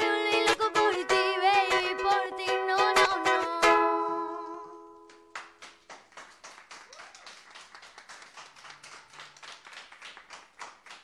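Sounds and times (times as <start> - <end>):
ukulele chord ringing: 0.0 - 5.3
small group clapping: 5.0 - 11.0.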